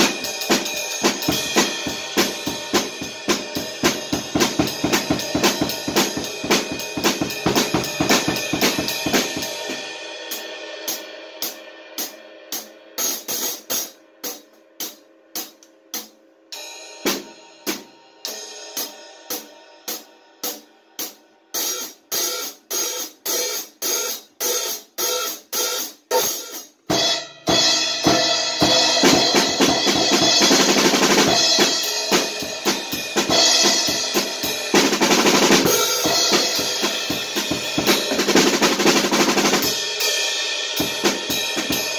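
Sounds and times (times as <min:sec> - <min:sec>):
drum kit playing: 0:00.0 - 0:41.9
cymbals: 0:21.6 - 0:41.9.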